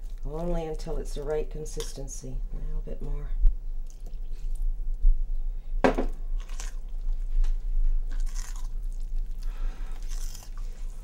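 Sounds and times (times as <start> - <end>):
knock: 5.8 - 6.1.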